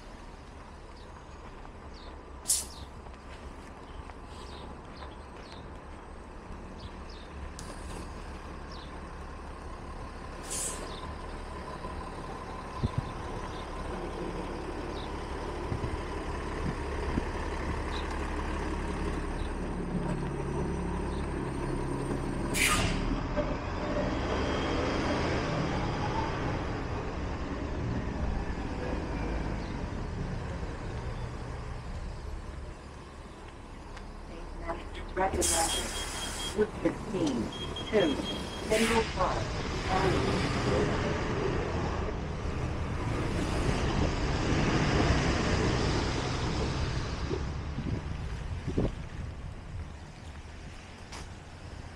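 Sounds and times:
heavy vehicle engine running: 0:00.0 - 0:51.9
street traffic: 0:00.0 - 0:51.9
air-brake release hiss: 0:02.5 - 0:02.8, 0:22.6 - 0:23.0.

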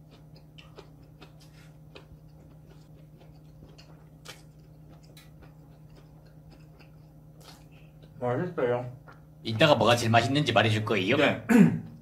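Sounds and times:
person chewing food: 0:00.0 - 0:08.3
steady low hum: 0:00.0 - 0:12.0.

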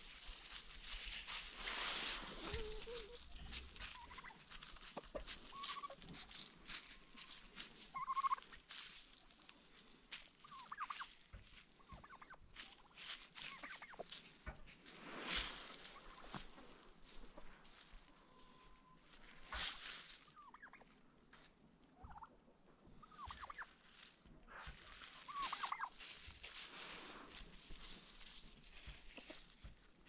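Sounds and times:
birds scratching in dry leaves: 0:00.0 - 0:20.8, 0:23.1 - 0:30.0
turkeys calling: 0:02.3 - 0:09.5, 0:10.1 - 0:14.7, 0:15.7 - 0:21.0, 0:22.0 - 0:29.8
turkey gobble: 0:02.4 - 0:08.6, 0:10.4 - 0:11.2, 0:11.8 - 0:14.2, 0:20.2 - 0:21.0, 0:22.0 - 0:22.4, 0:23.0 - 0:23.8, 0:24.5 - 0:26.6.

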